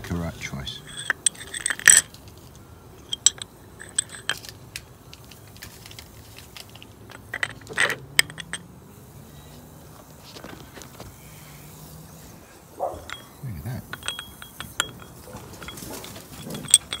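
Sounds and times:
metal clinking against glass jar: 0.6 - 2.2, 3.0 - 4.7, 7.1 - 8.7, 12.8 - 17.0.

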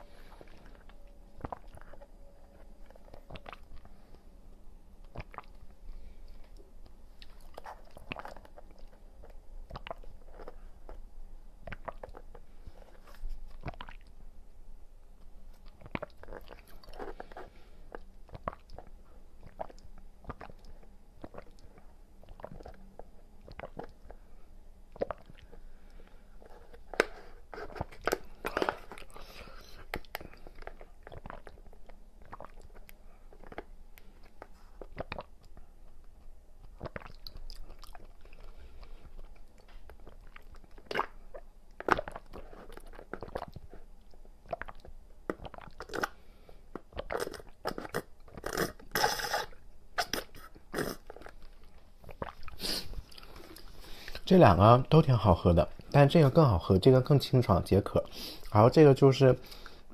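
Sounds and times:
wet chewing clicks: 0.3 - 4.0, 5.0 - 5.7, 6.5 - 11.0, 11.6 - 12.4, 13.5 - 14.2, 15.5 - 24.2, 24.9 - 54.3
sipping through a straw: 47.0 - 51.4, 52.0 - 54.3.

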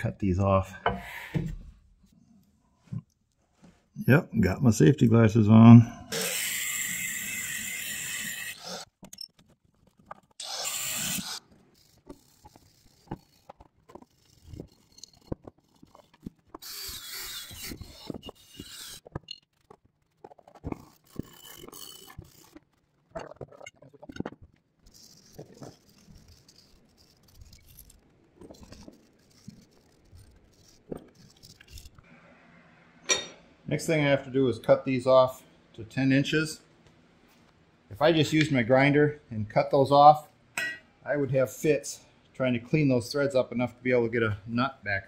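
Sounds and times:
angle grinder cutting metal: 6.1 - 8.9, 10.4 - 13.5, 16.6 - 19.1
metal parts clinking and scraping: 6.1 - 32.0.

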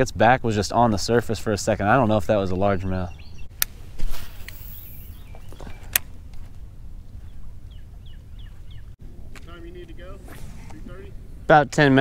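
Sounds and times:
bird calling falling notes: 4.5 - 11.4
brief rushing hiss: 10.0 - 11.4.

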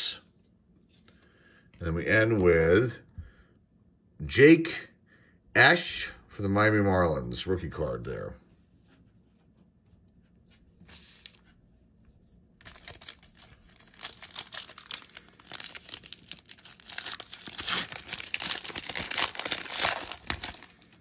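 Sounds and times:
foil wrapper tearing and crinkling: 12.6 - 21.0.

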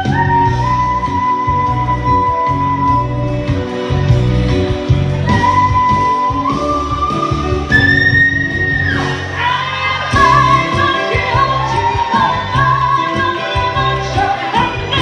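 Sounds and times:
instrumental accompaniment: 0.0 - 15.0
woman singing: 5.3 - 15.0.

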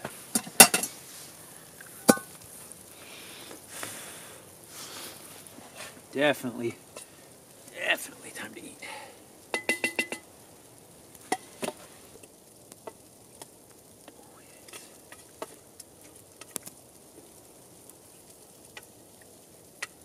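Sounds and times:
faint hiss: 0.0 - 20.0.

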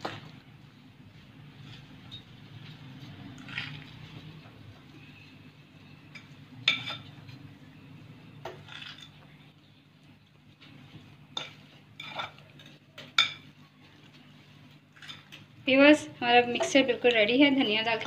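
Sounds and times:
fork scraping a ceramic plate: 11.4 - 13.3.

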